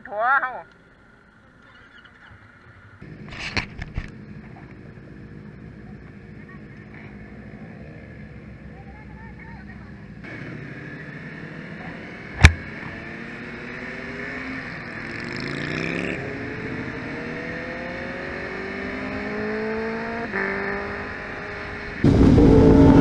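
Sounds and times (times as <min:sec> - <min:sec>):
motorcycle engine accelerating: 0:03.0 - 0:23.0
sharp click: 0:12.4 - 0:12.6.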